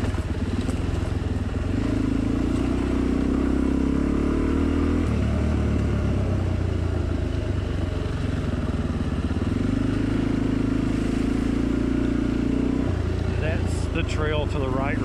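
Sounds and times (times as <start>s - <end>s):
dirt bike engine under throttle: 0.0s - 15.0s.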